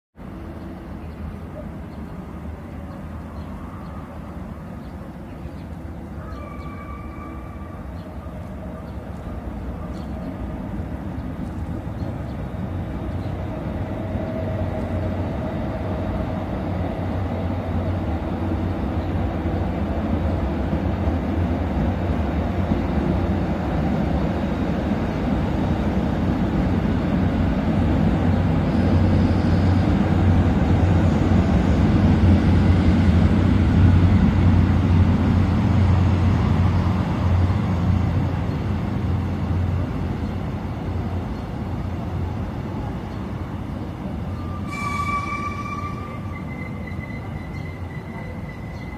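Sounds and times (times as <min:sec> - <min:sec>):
train rumbling: 0:00.2 - 0:48.9.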